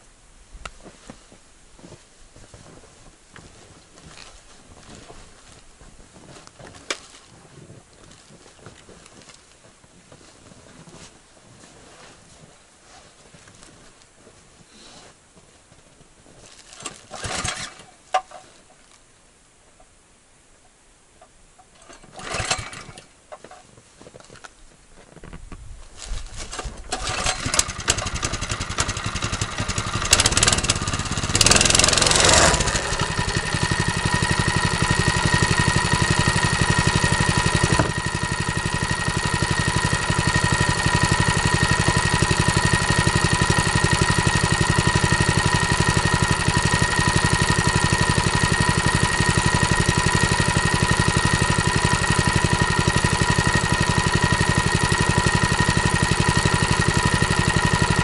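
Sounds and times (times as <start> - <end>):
small petrol engine: 16.8 - 17.9, 21.8 - 23.1, 26.5 - 58.0.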